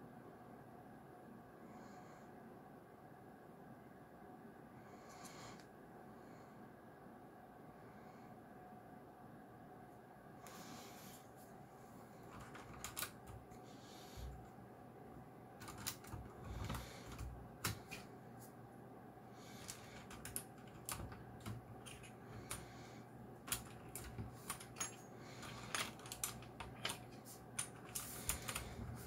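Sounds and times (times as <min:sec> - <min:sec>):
mechanical keyboard clicking: 0:12.3 - 0:13.4, 0:15.6 - 0:18.0, 0:19.6 - 0:22.6, 0:25.5 - 0:27.0.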